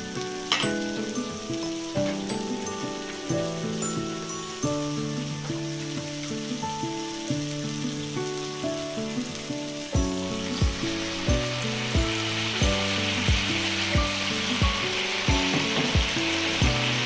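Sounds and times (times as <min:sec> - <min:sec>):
meat sizzling in a frying pan: 0:00.0 - 0:17.0
background music with steady beat: 0:10.0 - 0:17.0.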